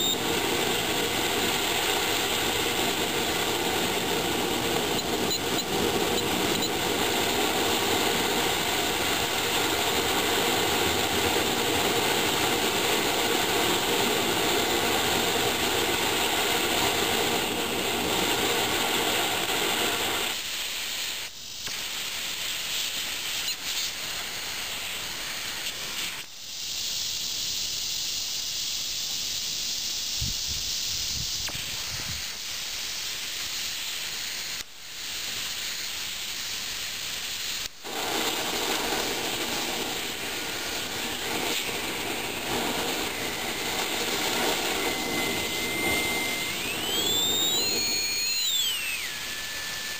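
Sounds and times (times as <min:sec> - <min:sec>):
oil burner flame roaring: 0:00.0 - 0:21.0, 0:37.2 - 0:49.9
atomizing air hissing: 0:00.0 - 0:49.9.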